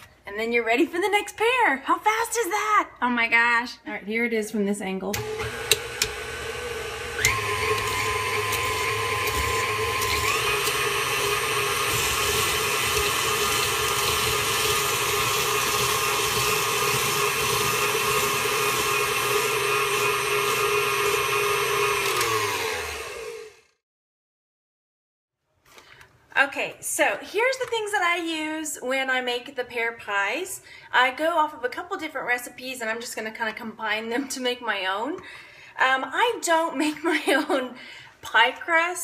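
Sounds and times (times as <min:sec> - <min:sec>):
mixer motor and gear whine: 0:05.2 - 0:23.7.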